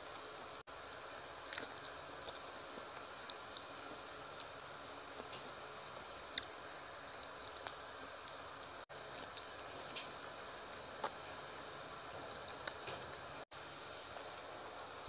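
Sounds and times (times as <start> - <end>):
steady hiss: 0.0 - 15.0
person chewing food: 1.0 - 5.5, 6.3 - 11.5.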